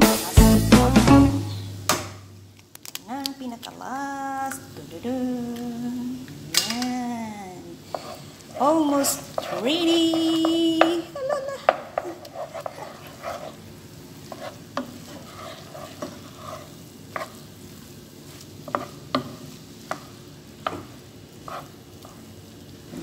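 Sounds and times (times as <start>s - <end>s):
light sizzle: 0.0s - 23.0s
spatula clacking against pan: 9.3s - 13.5s.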